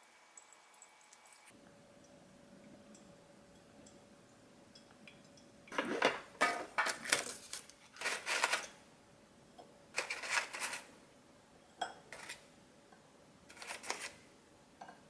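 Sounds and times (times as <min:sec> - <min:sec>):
paper liners crinkling: 0:06.9 - 0:08.6, 0:13.5 - 0:14.2.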